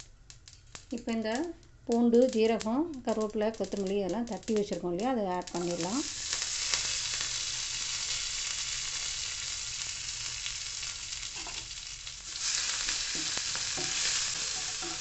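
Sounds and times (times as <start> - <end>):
spices sizzling in hot oil: 0.0 - 15.0
wooden spatula stirring pan: 12.8 - 15.0.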